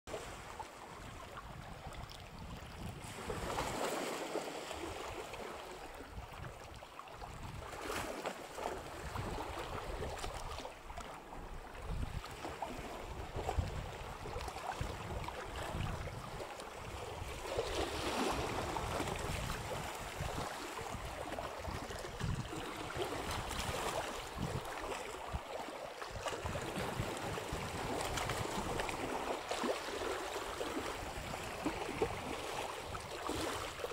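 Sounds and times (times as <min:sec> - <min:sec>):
wind buffeting microphone: 0:01.0 - 0:03.6, 0:07.2 - 0:07.8, 0:11.4 - 0:25.4, 0:26.1 - 0:29.2.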